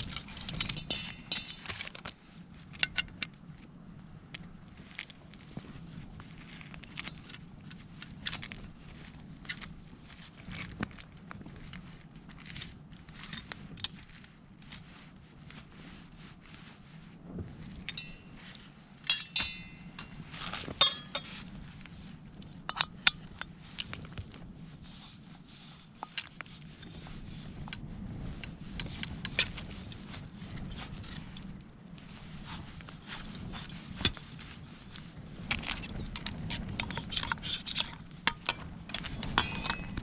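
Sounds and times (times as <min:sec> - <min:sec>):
small metal objects clinking: 0:20.8 - 0:21.3.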